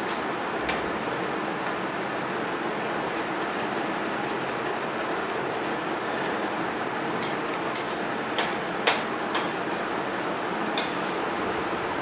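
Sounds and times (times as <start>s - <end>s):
spoon scraping a plate: 7.2s - 9.7s, 10.7s - 11.3s.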